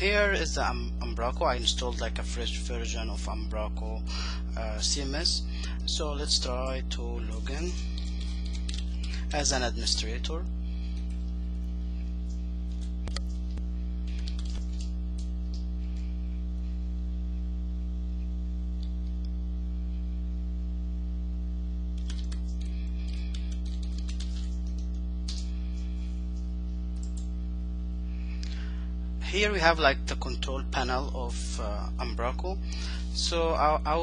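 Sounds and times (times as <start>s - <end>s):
low electrical hum: 0.0s - 34.0s
typing on a keyboard: 14.1s - 15.3s, 22.0s - 25.4s.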